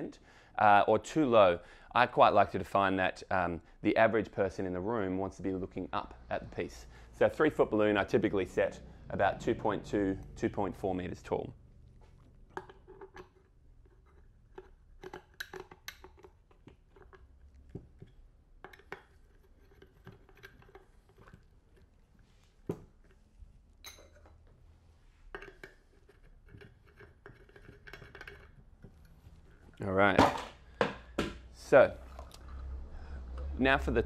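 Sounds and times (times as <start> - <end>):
lamp parts clicking and scraping: 12.2 - 22.0, 25.3 - 29.8.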